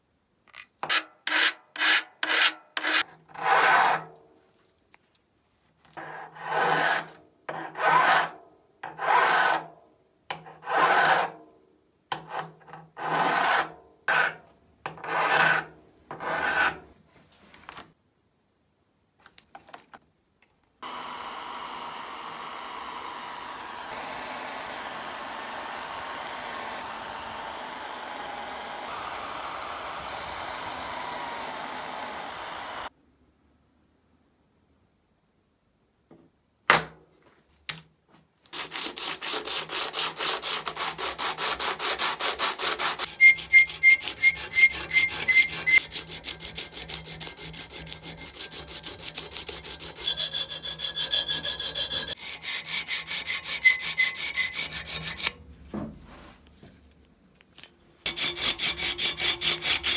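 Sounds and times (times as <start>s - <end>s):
drill press with buffing wheel: 20.8s - 32.9s, 43.0s - 55.3s, 58.1s - 59.9s
hand file rasping on steel: 38.6s - 55.4s, 58.1s - 59.9s.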